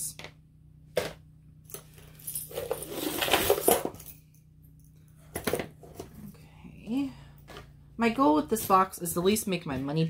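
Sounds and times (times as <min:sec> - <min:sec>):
jewelry clinking and jangling: 0:01.6 - 0:05.1.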